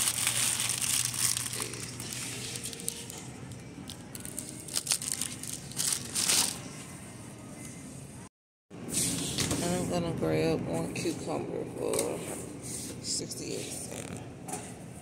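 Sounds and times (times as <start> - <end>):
plastic wrapping crinkling: 0.0 - 6.8.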